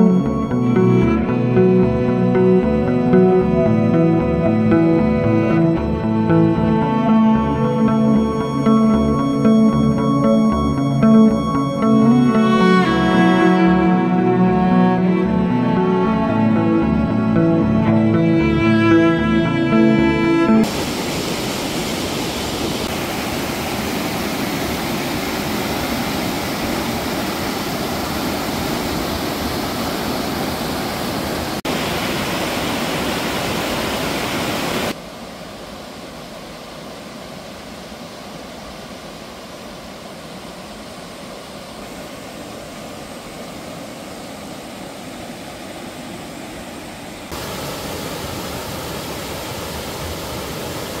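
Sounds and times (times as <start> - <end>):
stream rushing over rocks: 20.6 - 51.0.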